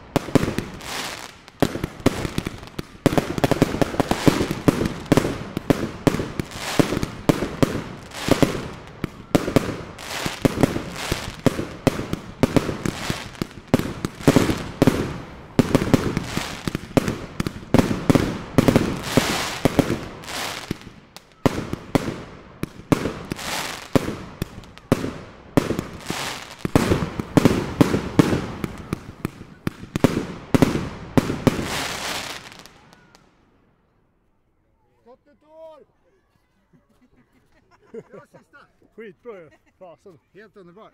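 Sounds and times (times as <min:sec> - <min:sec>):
fireworks bangs and crackling: 0:00.0 - 0:33.5.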